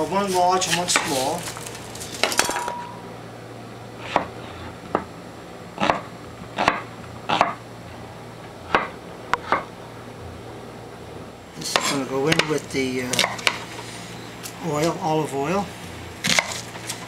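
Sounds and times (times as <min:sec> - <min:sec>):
knife cutting onion on board: 0:05.8 - 0:07.6.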